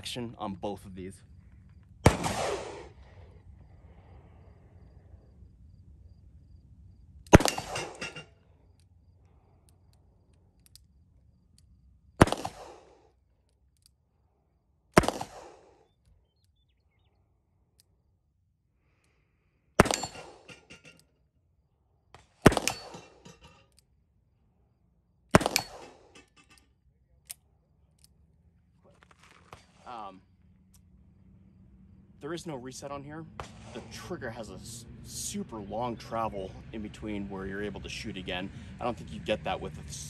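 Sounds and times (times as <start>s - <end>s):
revolver shots echoing: 2.0s - 3.2s, 7.3s - 8.3s, 12.2s - 13.0s, 15.0s - 15.8s, 19.8s - 20.7s, 22.2s - 23.5s, 25.3s - 26.2s, 33.3s - 33.9s.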